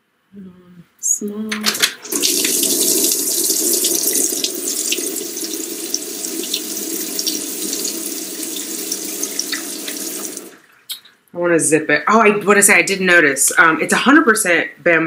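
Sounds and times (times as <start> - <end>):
washing machine filling with water: 2.0 - 10.8.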